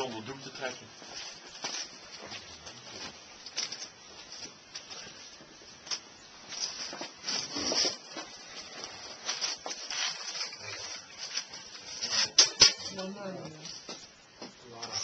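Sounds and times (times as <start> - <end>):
clothing rustling: 1.1 - 13.9.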